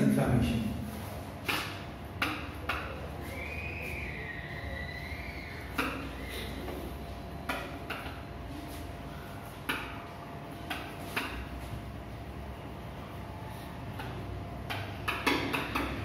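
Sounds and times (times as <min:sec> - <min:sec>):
low room hum: 0:00.0 - 0:16.0
marker squeaking on whiteboard: 0:01.5 - 0:08.9.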